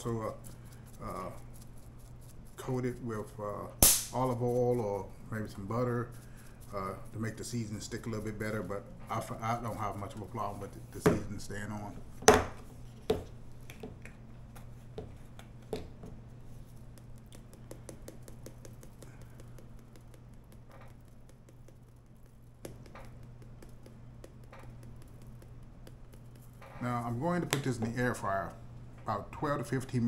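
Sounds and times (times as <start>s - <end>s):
low steady hum: 0.0s - 30.0s
sharp knock: 3.8s - 4.2s
shaker bottle ticks and taps: 16.9s - 26.6s.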